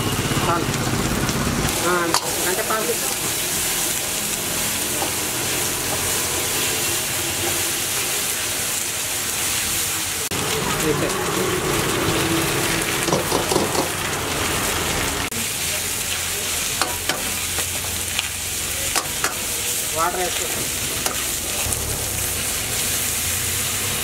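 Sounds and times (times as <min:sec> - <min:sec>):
vegetables sizzling in a wok: 0:00.0 - 0:24.0
metal ladle scraping wok: 0:01.7 - 0:09.6, 0:16.5 - 0:24.0.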